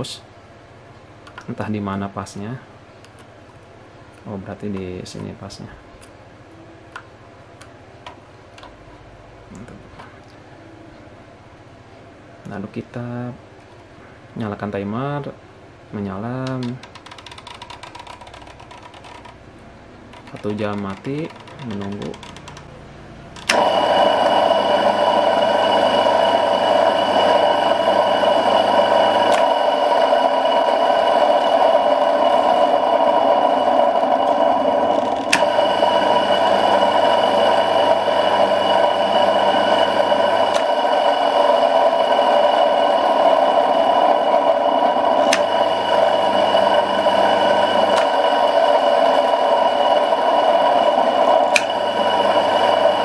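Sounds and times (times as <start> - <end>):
sharp clicks: 20.1 - 22.7
contactor pulling in: 23.4 - 53.0
electric motor humming: 23.4 - 53.0.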